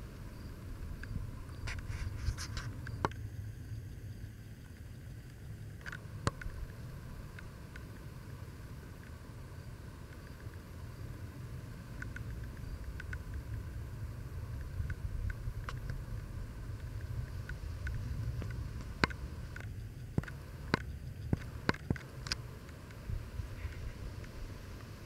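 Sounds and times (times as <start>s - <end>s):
wind rumble on microphone: 0.0s - 25.0s
sharp clicks: 5.2s - 8.1s, 11.9s - 13.6s, 14.5s - 23.0s.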